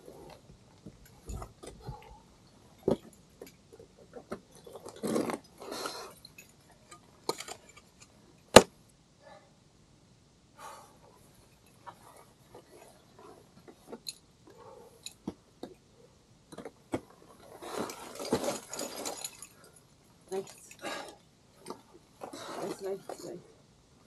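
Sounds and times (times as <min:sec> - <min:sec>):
metal climbing gear clinking: 0:00.0 - 0:08.6, 0:11.1 - 0:23.5
scraping rustle: 0:17.0 - 0:19.6.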